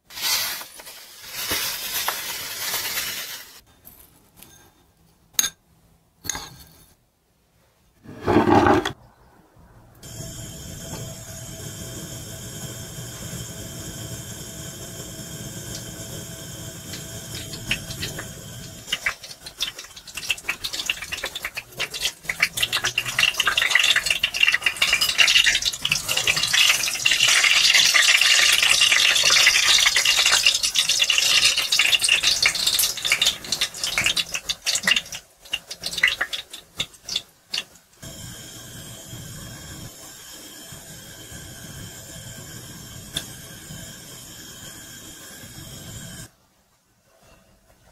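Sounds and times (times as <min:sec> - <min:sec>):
hot oil sizzling and crackling: 0:00.0 - 0:03.6, 0:10.0 - 0:46.3.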